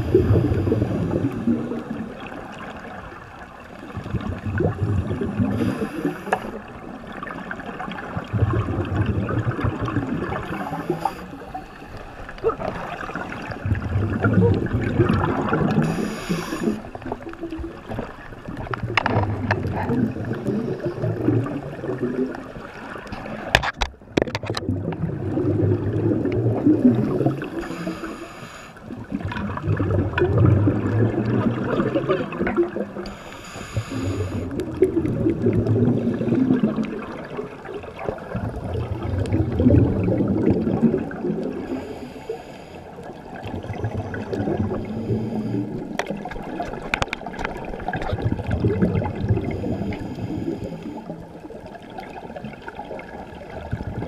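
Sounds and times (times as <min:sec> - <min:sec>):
exhaled bubbles gurgling: 0:00.0 - 0:54.0
regulator inhalation hiss: 0:05.6 - 0:06.6, 0:10.6 - 0:12.0, 0:15.8 - 0:16.9, 0:27.4 - 0:28.8, 0:33.1 - 0:34.5, 0:41.7 - 0:43.0, 0:49.6 - 0:51.0.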